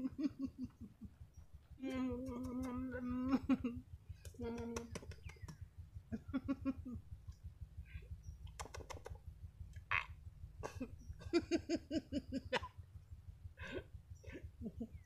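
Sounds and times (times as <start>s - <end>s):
man giggling: 0.0s - 1.1s, 6.1s - 7.0s, 10.6s - 12.6s.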